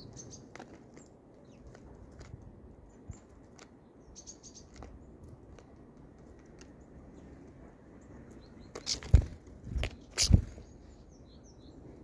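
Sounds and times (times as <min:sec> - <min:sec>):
beaks tapping on grain and wood: 0:04.6 - 0:06.8.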